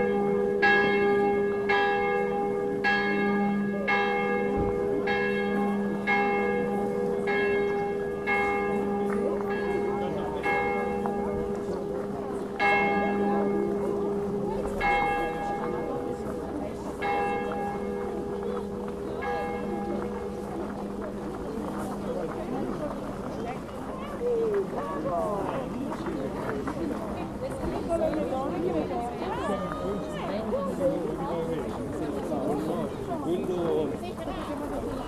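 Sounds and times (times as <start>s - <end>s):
church bell ringing: 0.0s - 23.2s.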